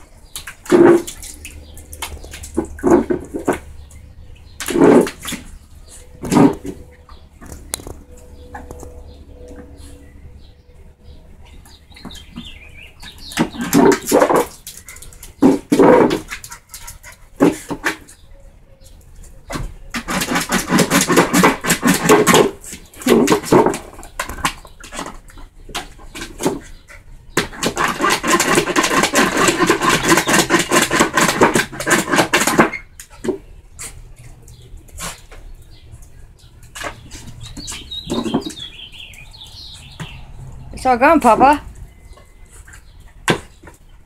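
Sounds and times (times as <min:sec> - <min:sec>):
dog lapping water: 0:00.0 - 0:06.8, 0:11.7 - 0:18.2, 0:19.9 - 0:39.8.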